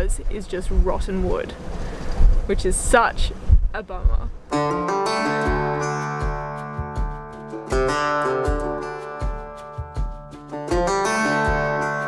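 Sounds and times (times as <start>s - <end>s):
steady low beat: 3.2s - 12.0s
plucked guitar music: 4.4s - 12.0s.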